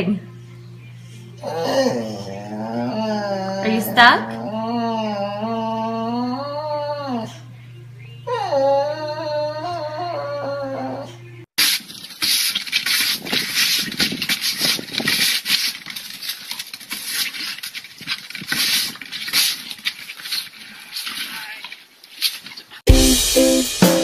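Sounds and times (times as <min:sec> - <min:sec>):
dog whining: 0:01.3 - 0:07.6, 0:08.2 - 0:11.4
broom bristles scraping wooden deck: 0:11.6 - 0:22.8.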